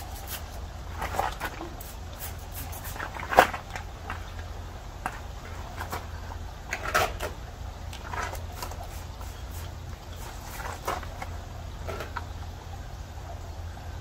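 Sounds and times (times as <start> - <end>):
spray bottle squirting water: 0.0 - 0.6, 1.3 - 3.3.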